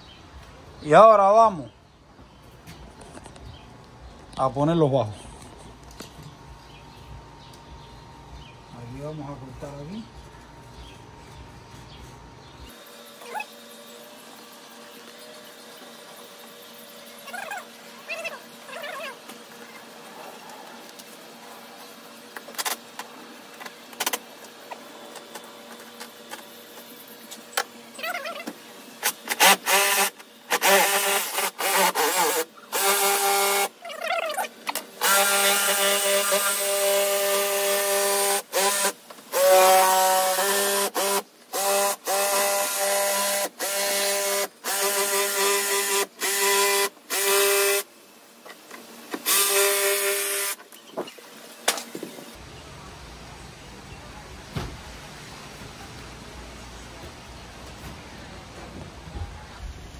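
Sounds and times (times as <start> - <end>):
power tool motor whine: 24.0 - 33.8, 34.7 - 52.4.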